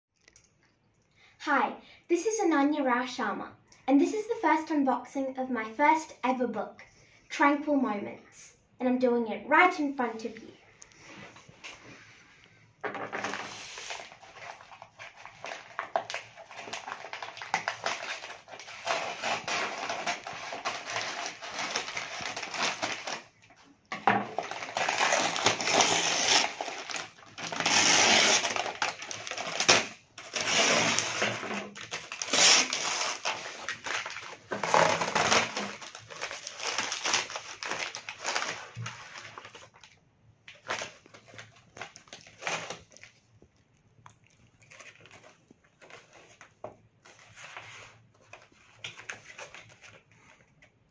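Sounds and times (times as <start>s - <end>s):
hands tearing paper mailer: 13.2s - 23.3s, 24.3s - 39.6s
stiff paper crinkling: 13.2s - 23.6s, 24.2s - 50.8s.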